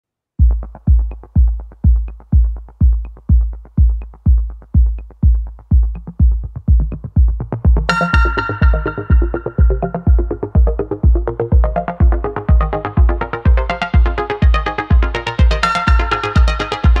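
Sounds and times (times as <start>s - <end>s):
deep kick drum beat: 0.4s - 17.0s
bright synth chord: 7.9s - 10.9s.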